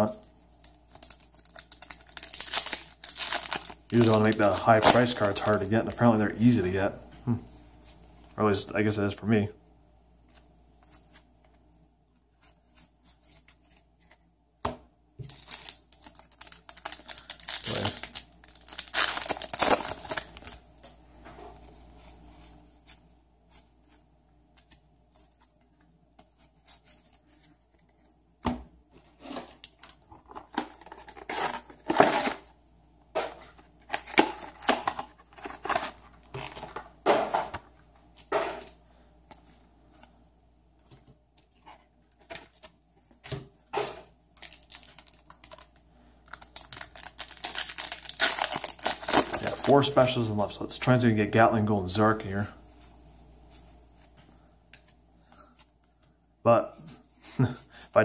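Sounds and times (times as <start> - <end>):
wrappers tearing and crinkling: 0.6 - 6.6, 15.2 - 20.6, 29.6 - 32.5, 44.3 - 50.2.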